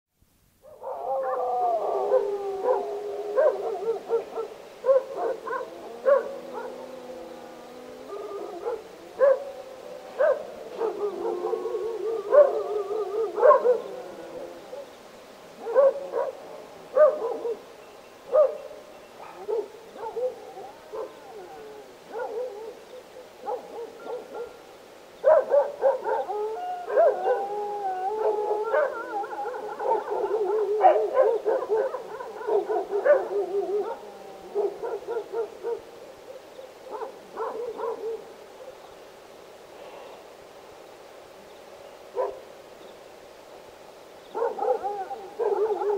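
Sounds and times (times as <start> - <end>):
dogs howling: 0.6 - 14.9, 15.6 - 17.7, 19.2 - 22.8, 25.2 - 35.9, 44.4 - 45.9
dogs barking: 2.0 - 6.9, 8.6 - 9.5, 10.2 - 11.6, 12.3 - 12.6, 13.3 - 13.9, 15.6 - 17.7, 18.3 - 21.3, 22.1 - 24.6, 25.2 - 27.5, 28.2 - 35.9, 36.9 - 38.3, 42.2 - 42.4, 44.3 - 45.9.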